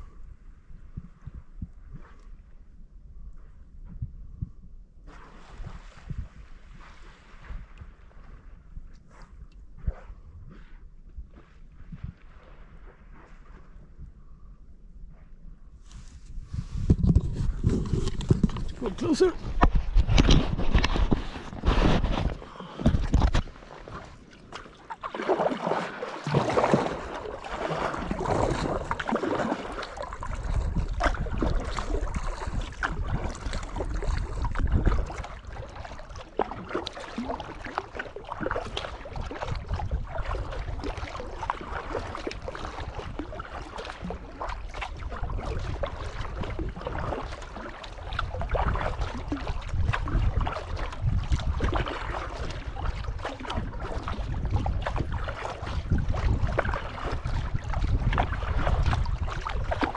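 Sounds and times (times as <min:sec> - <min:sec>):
wind rumbling on microphone: 0:00.0 - 0:59.9
paddle blades dipping: 0:15.9 - 0:59.9
water splashing and dripping: 0:17.8 - 0:59.9.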